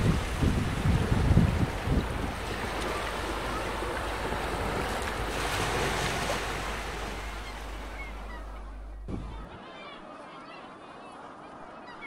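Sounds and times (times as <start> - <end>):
sea surf: 0.0 - 9.8
faint high bird calls: 7.2 - 10.6.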